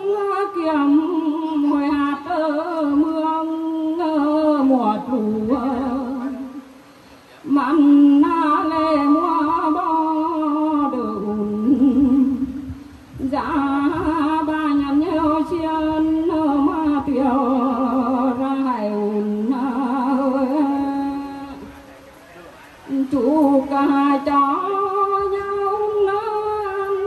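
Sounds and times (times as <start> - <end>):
woman singing unaccompanied: 0.0 - 6.8, 7.4 - 21.7, 22.9 - 27.0.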